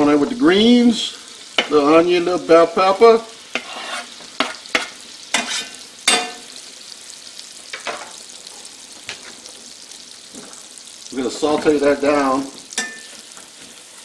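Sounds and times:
butter sizzling: 0:00.0 - 0:14.0
knife scraping cutting board: 0:03.5 - 0:05.8.

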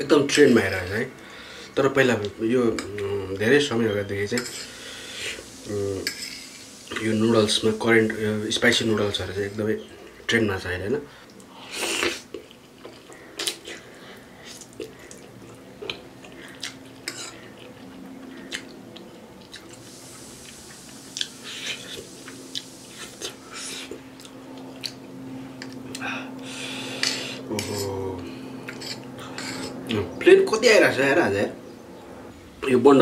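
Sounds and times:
person slurping and chewing noodles: 0:19.4 - 0:28.0, 0:28.6 - 0:29.9.

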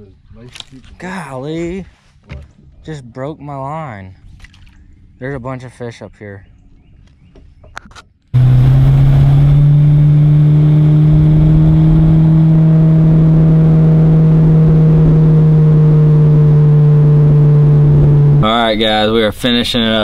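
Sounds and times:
outboard motor drone: 0:08.4 - 0:19.3.

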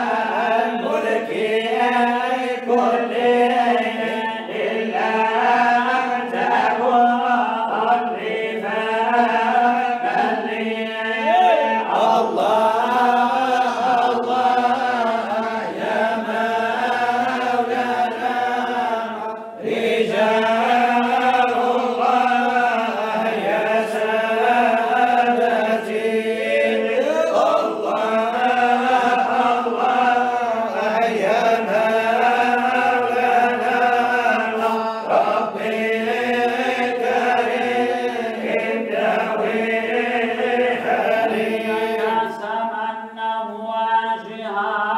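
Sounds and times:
lead male voice chanting: 0:11.1 - 0:12.1.

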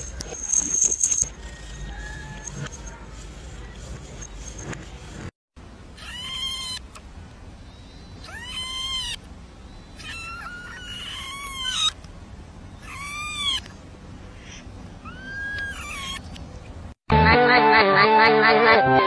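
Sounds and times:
kitten meowing: 0:12.8 - 0:13.7.

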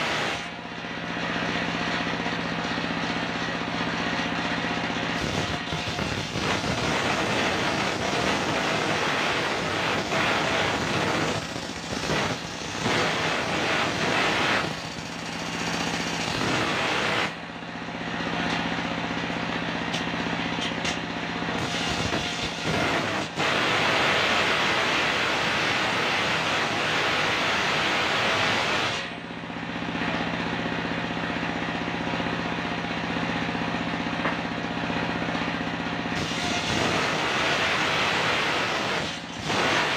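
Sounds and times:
stationary engine running: 0:00.0 - 0:39.9
circular saw ripping wood: 0:05.2 - 0:17.4, 0:21.6 - 0:29.1, 0:36.2 - 0:39.9.

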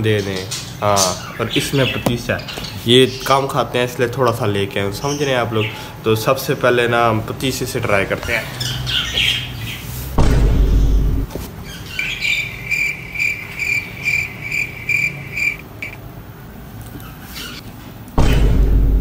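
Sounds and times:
high-pitched chirp: 0:11.7 - 0:16.0.

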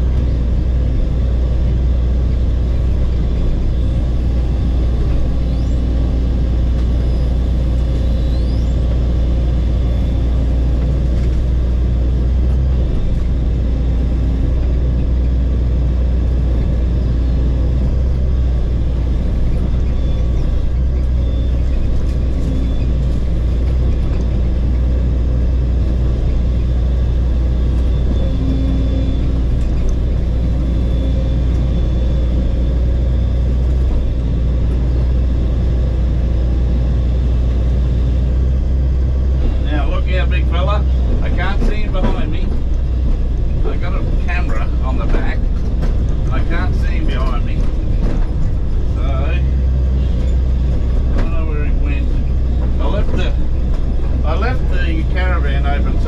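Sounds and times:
bulldozer diesel engine drone: 0:00.0 - 0:56.0.

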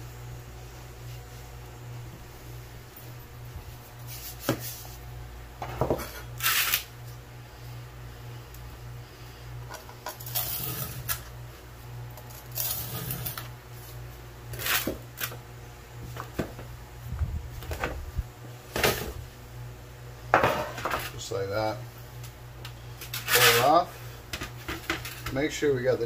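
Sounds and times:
sand scraping and crumbling: 0:23.2 - 0:23.9.

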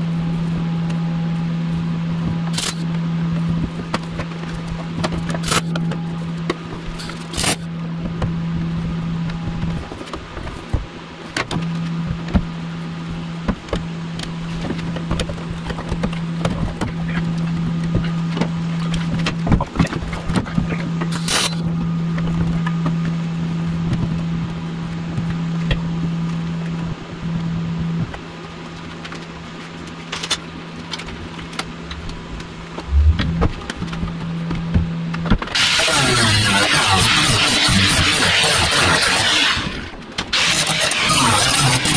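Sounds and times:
steady welder hum: 0:31.4 - 0:34.2, 0:35.5 - 0:41.9
crackling welding arc: 0:35.5 - 0:41.9
sharp loud welding bursts: 0:35.5 - 0:41.9.

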